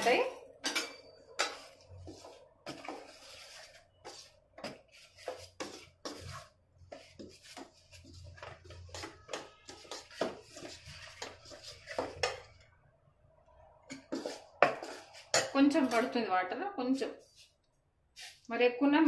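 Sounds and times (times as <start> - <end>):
spatula scraping steel bowl: 0.0 - 12.5, 13.9 - 16.2.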